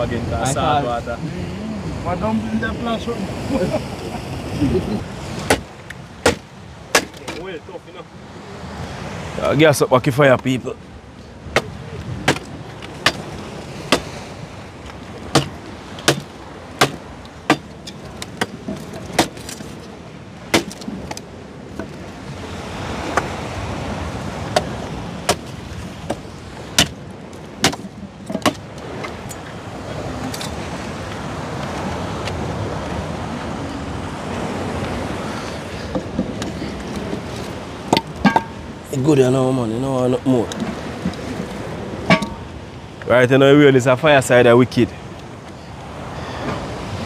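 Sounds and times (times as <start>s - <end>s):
rushing background noise: 0.0s - 47.0s.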